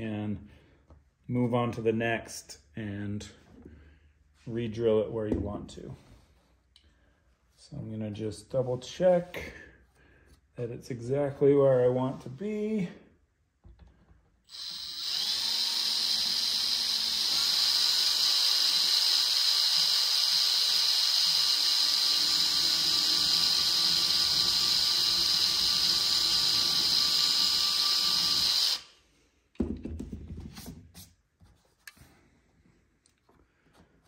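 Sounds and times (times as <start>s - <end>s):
cordless drill whining: 14.5s - 28.9s.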